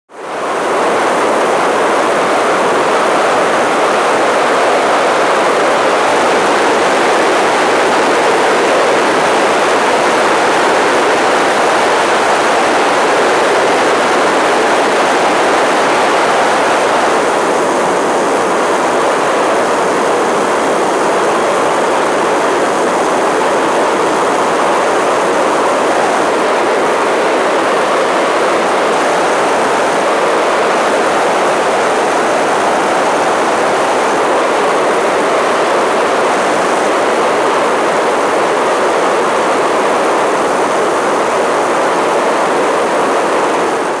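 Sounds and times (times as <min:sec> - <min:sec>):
aircraft engine noise: 0:00.1 - 0:44.0.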